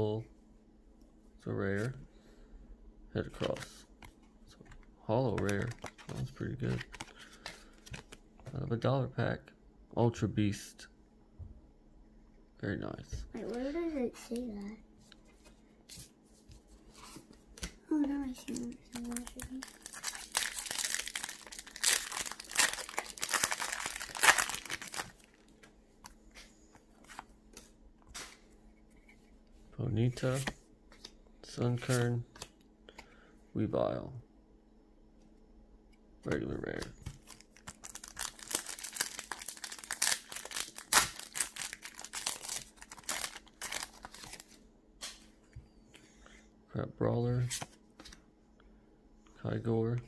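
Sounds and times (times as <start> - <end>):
cards being handled: 3.4 - 8.5, 30.1 - 31.2, 47.4 - 48.2
foil wrapper crinkling and tearing: 18.5 - 25.5, 37.2 - 44.6.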